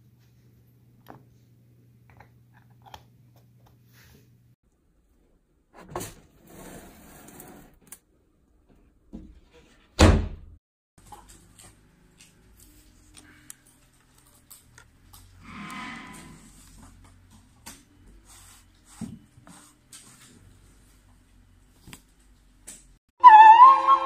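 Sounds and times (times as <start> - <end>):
brief scraping hiss: 15.4 - 16.5.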